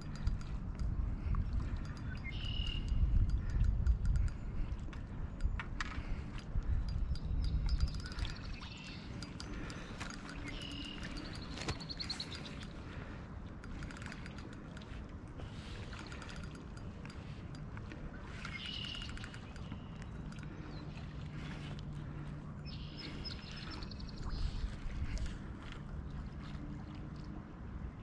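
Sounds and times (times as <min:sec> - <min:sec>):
low rumble of wind: 0:00.0 - 0:28.0
small birds chirping: 0:01.8 - 0:04.5, 0:06.8 - 0:13.0, 0:18.3 - 0:24.8
small clicks: 0:13.6 - 0:15.0, 0:15.9 - 0:20.5.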